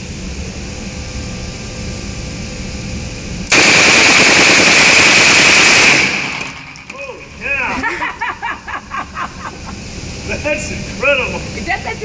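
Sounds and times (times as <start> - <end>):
low background hum: 0.0 - 12.0
submachine gun automatic fire: 3.5 - 6.8.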